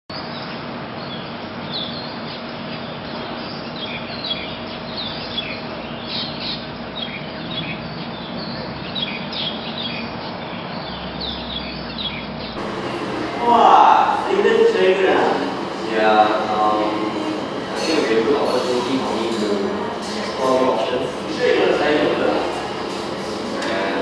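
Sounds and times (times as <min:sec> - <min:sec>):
birds chirping: 0:00.2 - 0:24.0
faint hum: 0:12.6 - 0:24.0
steady background hiss: 0:12.6 - 0:24.0.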